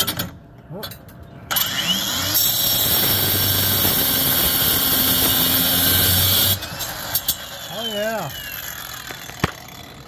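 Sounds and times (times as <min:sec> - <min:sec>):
angle grinder whine: 0:01.5 - 0:10.0
grinder cutting through steel: 0:01.5 - 0:10.0.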